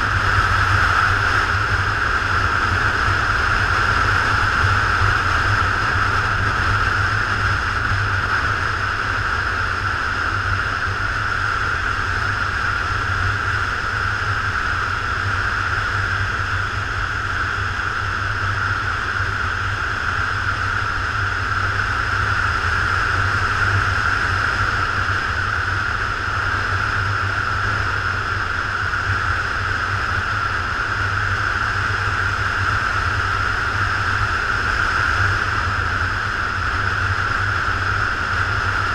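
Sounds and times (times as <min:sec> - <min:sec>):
motorcycle engine drone: 0:00.0 - 0:38.9
wind rushing over camera: 0:00.0 - 0:38.9.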